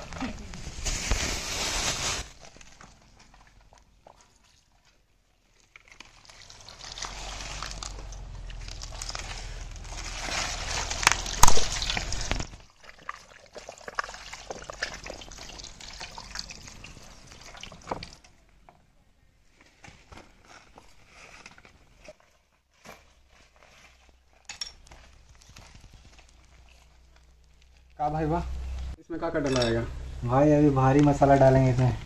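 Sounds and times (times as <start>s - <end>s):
wet splashes and dribbles: 2.4s - 18.3s
water pouring onto chickens in tray: 5.6s - 9.3s, 9.9s - 18.3s.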